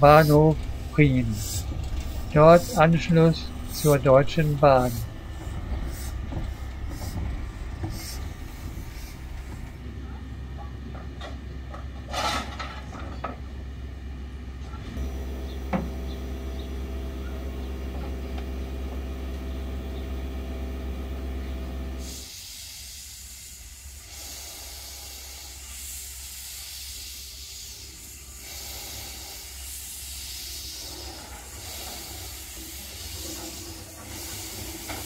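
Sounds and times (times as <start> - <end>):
steam blowing from drain cocks: 0.0 - 9.8, 21.8 - 35.0
steam locomotive hissing: 0.0 - 10.2, 22.0 - 35.0.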